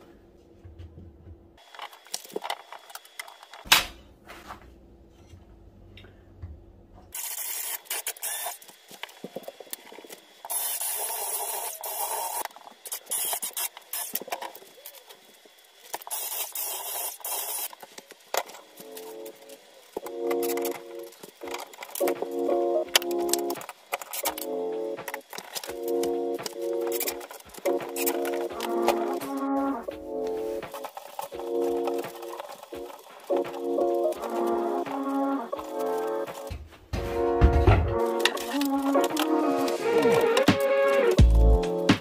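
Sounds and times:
cordless drill driving screws: 0:07.2 - 0:08.7, 0:10.5 - 0:14.2
knocks and clicks of shelf parts: 0:36.4 - 0:38.0.

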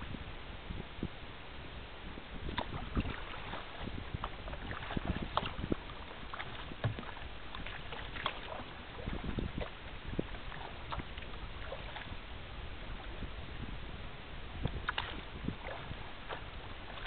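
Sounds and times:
steady rush of water: 0:01.2 - 0:17.0
water slapping against kayak hull: 0:02.4 - 0:12.2, 0:14.6 - 0:17.0.

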